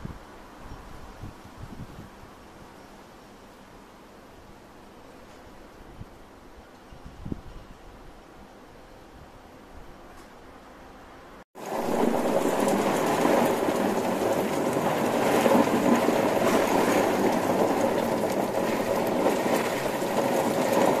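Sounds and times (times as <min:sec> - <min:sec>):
heavy rain pouring: 0:11.6 - 0:21.0.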